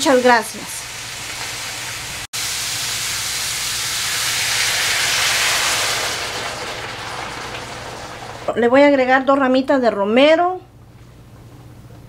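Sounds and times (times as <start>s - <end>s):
beef sizzling in a pan: 0.0s - 8.5s
water hissing on hot meat: 0.2s - 8.5s.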